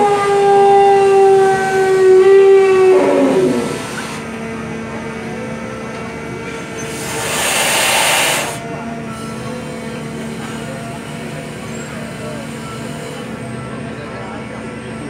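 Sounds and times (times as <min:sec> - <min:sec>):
engine and hydraulics hum: 0:00.0 - 0:15.0
hiss: 0:03.7 - 0:04.2, 0:06.8 - 0:08.6.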